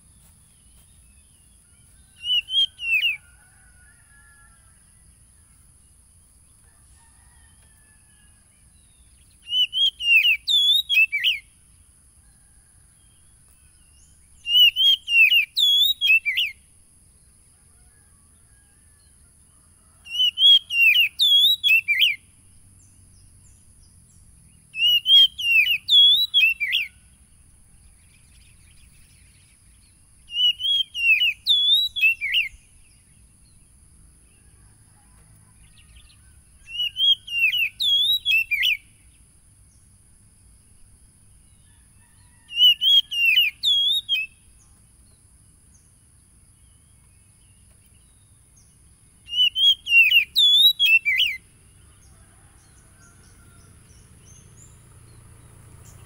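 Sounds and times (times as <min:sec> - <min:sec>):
bird calling: 0:36.2 - 0:38.8, 0:42.2 - 0:44.4, 0:49.2 - 0:51.4.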